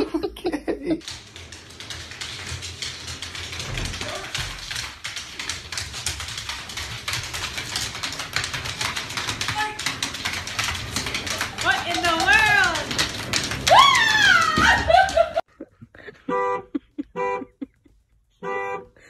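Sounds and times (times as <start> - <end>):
dog claws clicking on wooden floor: 1.0 - 15.4.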